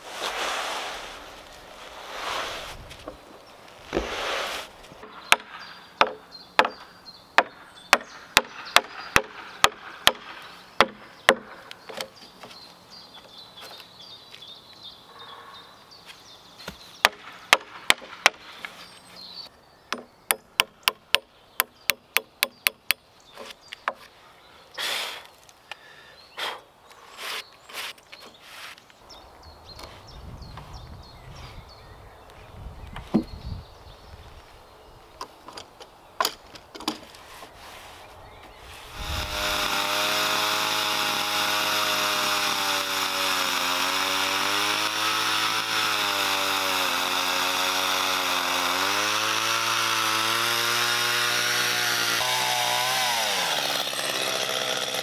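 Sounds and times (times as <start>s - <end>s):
hammer striking wood: 5.0s - 6.8s, 7.4s - 11.6s.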